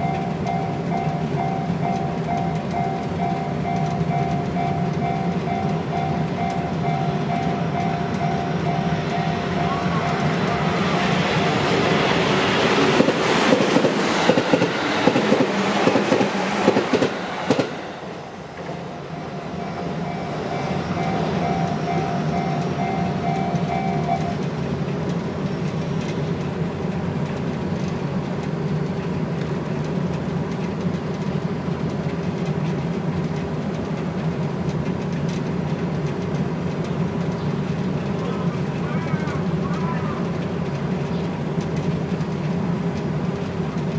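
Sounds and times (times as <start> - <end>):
crossing warning bell ringing: 0.0 - 12.3, 18.8 - 24.6
train wheels clattering: 0.0 - 17.8, 19.6 - 43.9
steady background noise: 0.0 - 43.9.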